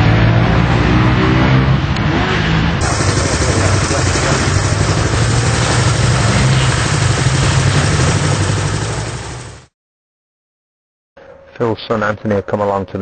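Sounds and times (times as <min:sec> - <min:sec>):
voices: 0:02.8 - 0:07.2
motorcycle engine idling: 0:02.8 - 0:09.7.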